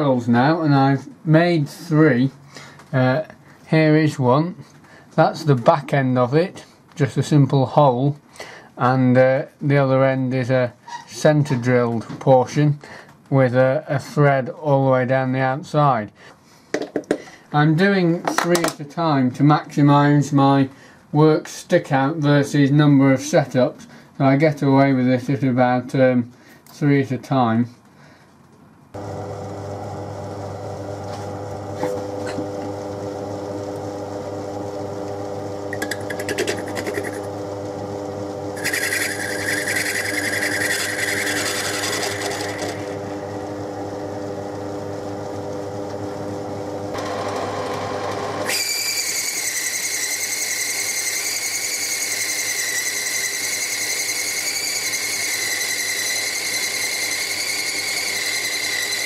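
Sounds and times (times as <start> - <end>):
lathe humming: 29.0 - 59.0
lathe tool cutting steel: 29.0 - 59.0.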